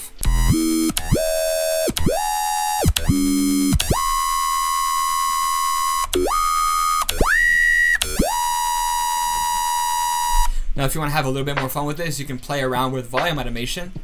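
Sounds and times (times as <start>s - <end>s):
metallic synth bass notes: 0.2s - 4.8s.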